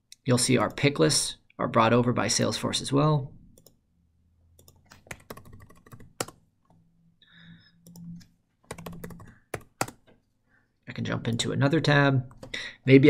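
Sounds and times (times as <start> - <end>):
keyboard typing: 3.6 - 3.8, 4.6 - 6.8, 7.8 - 10.2, 12.3 - 12.6.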